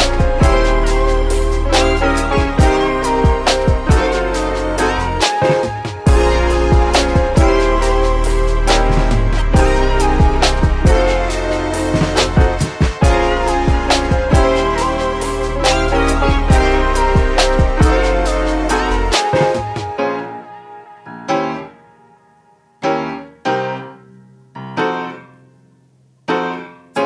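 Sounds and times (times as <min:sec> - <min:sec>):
sharp percussion: 0:00.0 - 0:20.0
held instrumental notes: 0:00.0 - 0:26.7
piano chords ringing: 0:00.0 - 0:27.0.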